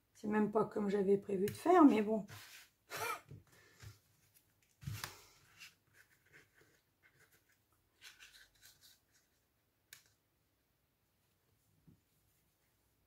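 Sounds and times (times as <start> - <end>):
paper rustling and sliding: 2.2 - 2.8
paper scrape: 2.2 - 2.8.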